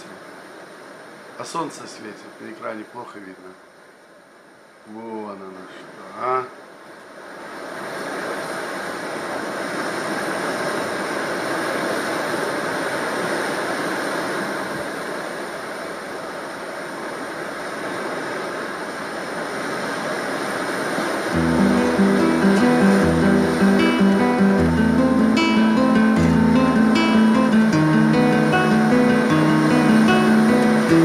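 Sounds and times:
steady rushing noise: 19.9s - 31.0s
acoustic guitar music: 21.3s - 31.0s.

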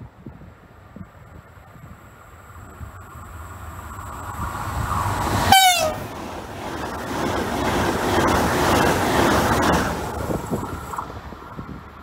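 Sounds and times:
train rushing past: 1.8s - 12.0s
train horn blast: 5.4s - 6.0s.

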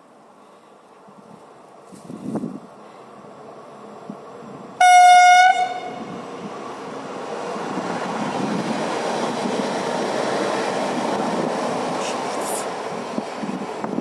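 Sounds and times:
train rumbling past: 0.9s - 14.0s
train horn blast: 4.8s - 6.1s.

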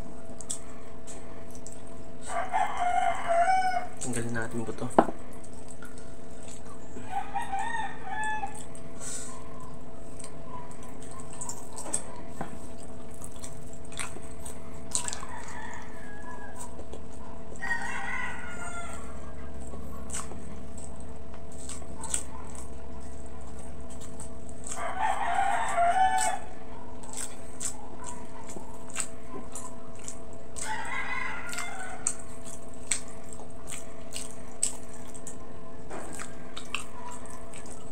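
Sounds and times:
steady low hum: 0.0s - 37.9s
wet chewing and lip-smacking: 0.0s - 37.9s
rooster crowing: 2.2s - 4.0s, 7.0s - 8.7s, 15.1s - 16.8s, 17.5s - 19.4s, 24.7s - 26.6s, 30.6s - 32.2s.

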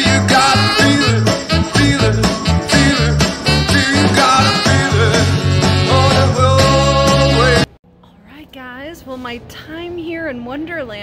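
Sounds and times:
music with pulsing bass: 0.0s - 7.7s.

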